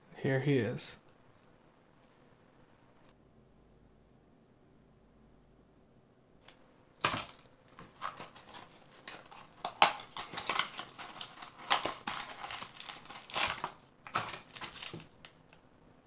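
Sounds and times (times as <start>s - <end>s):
plastic packaging crinkling: 7.0s - 15.6s.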